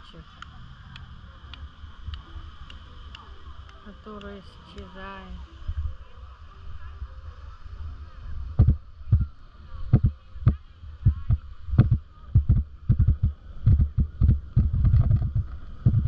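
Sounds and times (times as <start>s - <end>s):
wind rumble on microphone: 0.0s - 16.0s.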